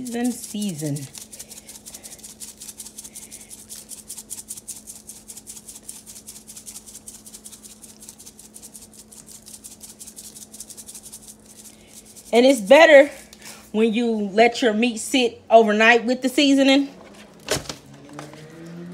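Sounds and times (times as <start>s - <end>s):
seasoning shaker rattling: 0.0s - 13.4s
faint steady hum: 0.0s - 18.2s.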